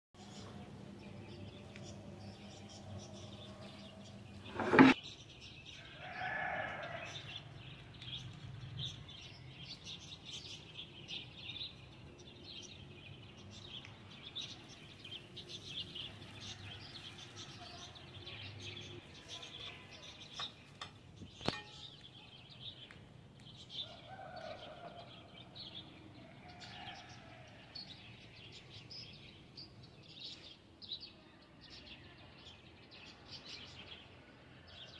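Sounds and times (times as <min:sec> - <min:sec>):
small birds chirping: 0:00.2 - 0:34.9.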